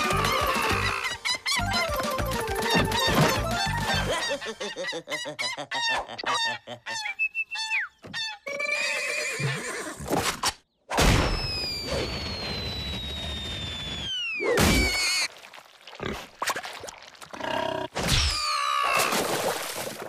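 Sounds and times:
cartoon crashes: 11.0s - 13.0s, 14.4s - 15.3s
long falling whistle: 11.4s - 14.5s.

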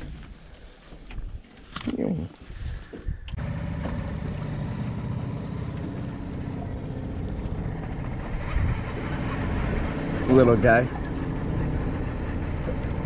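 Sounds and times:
boat motor humming: 3.3s - 13.0s.

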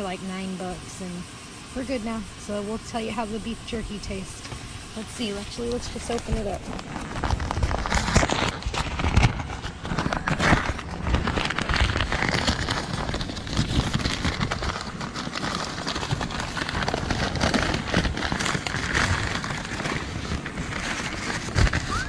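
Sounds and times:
paper wrapping crinkling: 5.2s - 22.0s.

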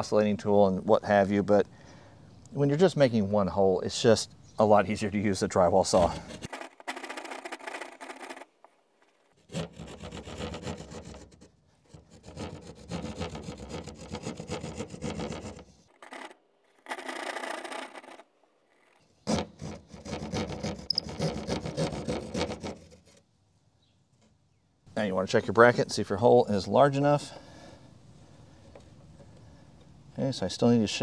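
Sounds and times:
hand saw rasping through drywall: 5.9s - 6.7s, 9.4s - 15.7s, 19.3s - 23.2s.

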